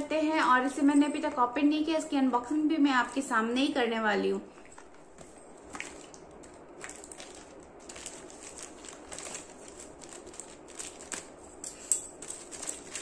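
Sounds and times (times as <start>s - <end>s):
plastic bag crinkling: 4.5s - 13.0s.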